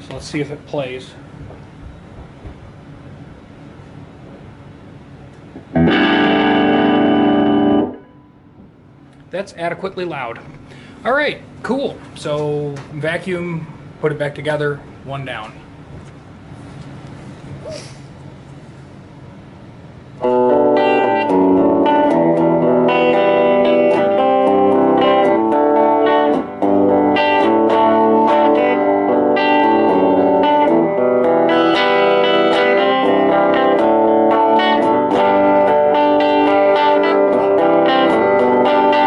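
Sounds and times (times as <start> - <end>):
electric guitar chords and notes: 5.4 - 9.2, 20.2 - 39.0.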